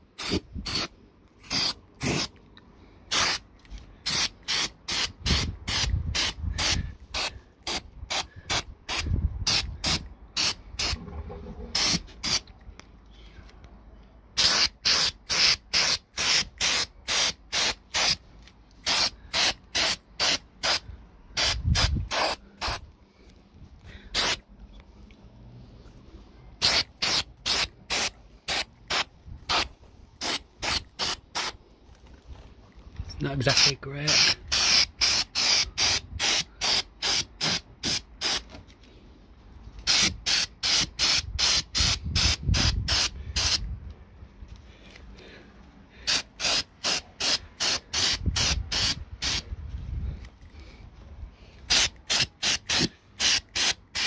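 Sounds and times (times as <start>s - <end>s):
spray can hissing in bursts: 0.2s - 2.3s, 3.1s - 3.4s, 4.0s - 11.0s, 11.7s - 12.4s, 14.4s - 18.2s, 18.8s - 20.8s, 21.4s - 22.8s, 24.2s - 24.4s, 26.6s - 31.6s, 33.5s - 38.4s, 39.8s - 43.6s, 46.1s - 49.4s, 51.7s - 54.0s.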